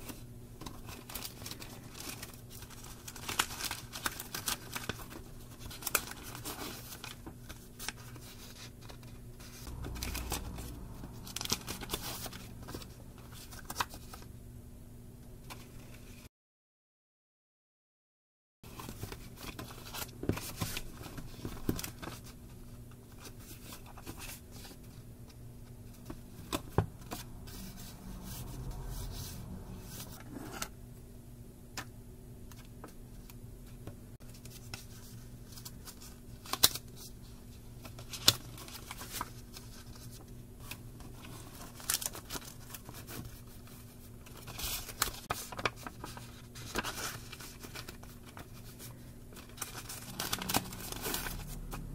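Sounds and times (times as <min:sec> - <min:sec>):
faint steady hum: 0:00.0 - 0:16.3, 0:18.7 - 0:51.9
paper rustling: 0:37.8 - 0:51.7.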